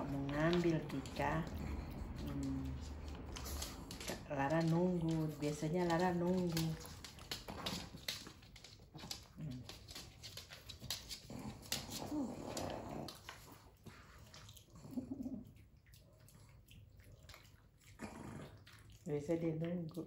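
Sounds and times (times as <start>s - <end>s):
dog crunching dry kibble: 0.0s - 14.2s.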